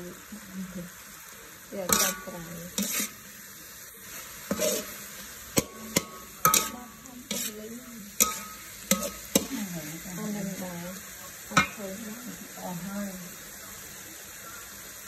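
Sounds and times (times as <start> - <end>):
meat sizzling in a wok: 0.0 - 15.0
metal spatula scraping a wok: 1.8 - 10.9.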